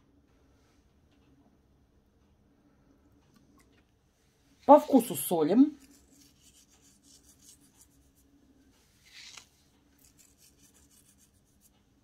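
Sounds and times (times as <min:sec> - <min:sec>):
salt rubbed between fingers: 0:05.8 - 0:08.3, 0:08.9 - 0:11.9.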